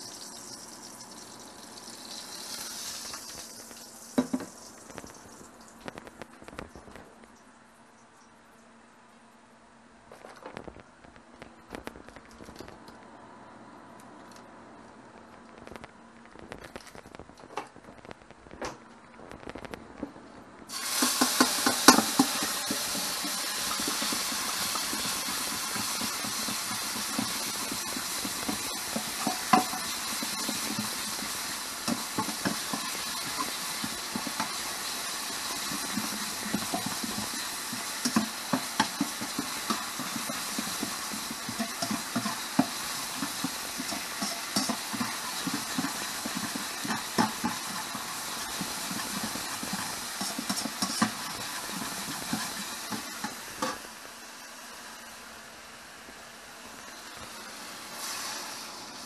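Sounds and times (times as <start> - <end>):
food sizzling in a frying pan: 0.0 - 7.0, 20.7 - 59.0
utensil tapping against pan: 21.0 - 34.6, 35.4 - 53.8.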